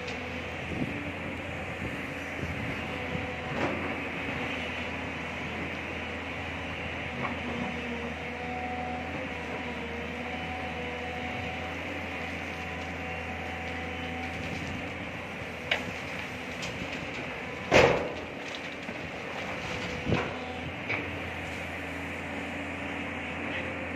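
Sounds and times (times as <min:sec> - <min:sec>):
diesel engines running: 0:00.0 - 0:23.9
soil and rock clanking into truck bed: 0:15.7 - 0:21.2.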